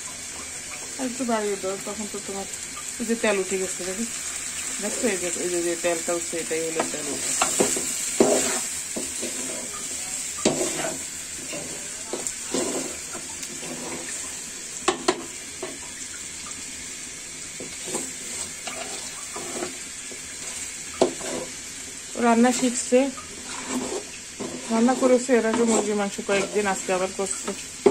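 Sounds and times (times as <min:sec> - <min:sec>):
food sizzling: 0:00.0 - 0:27.9
metal spatula scraping a pot: 0:06.8 - 0:14.4, 0:17.6 - 0:21.7, 0:22.4 - 0:27.9.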